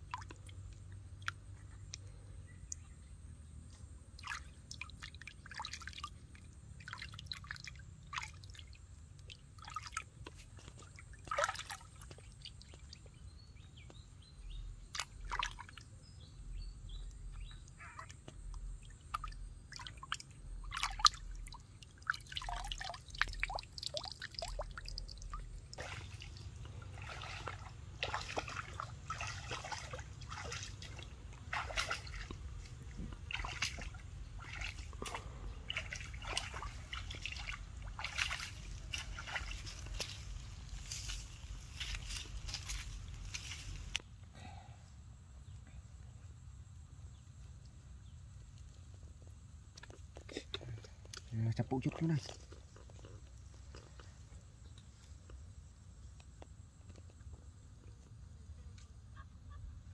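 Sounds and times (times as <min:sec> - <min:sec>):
water splashing and dripping: 0:00.0 - 0:02.8, 0:04.1 - 0:13.2, 0:14.8 - 0:15.9, 0:17.0 - 0:44.0.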